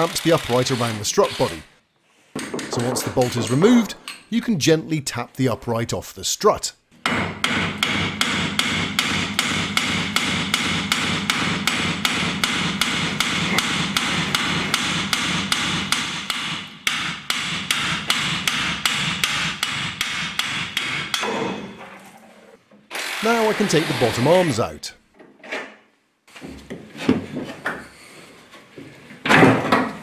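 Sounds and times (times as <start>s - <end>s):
hammer striking steel: 2.4s - 4.2s, 7.0s - 22.0s.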